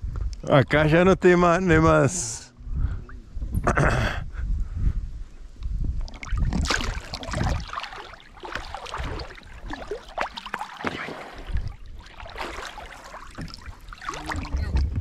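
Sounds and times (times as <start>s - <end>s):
water splashing around boat: 6.0s - 15.0s.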